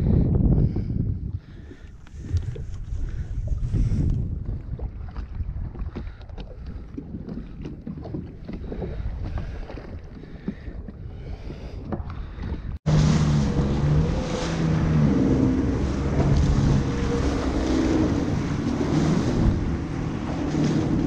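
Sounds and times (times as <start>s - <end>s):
low wind rumble: 0.0s - 21.0s
jet ski engine at speed: 12.0s - 21.0s
hull spray: 12.9s - 21.0s.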